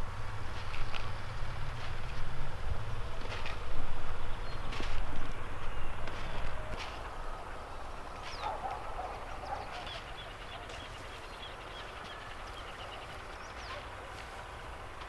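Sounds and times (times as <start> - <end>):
low bird calls: 4.2 - 14.8
high bird chirps: 8.2 - 14.0.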